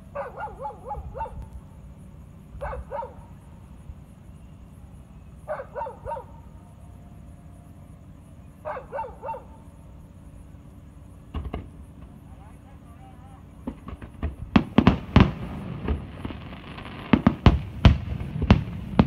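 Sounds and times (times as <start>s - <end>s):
dog barking: 0.1s - 1.5s, 2.6s - 3.3s, 5.5s - 6.5s, 8.6s - 9.6s.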